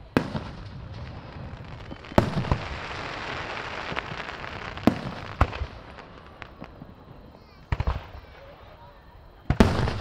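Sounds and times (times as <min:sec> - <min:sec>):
firework bangs: 0:00.0 - 0:08.7, 0:09.4 - 0:10.0
fireworks crackling: 0:00.0 - 0:10.0.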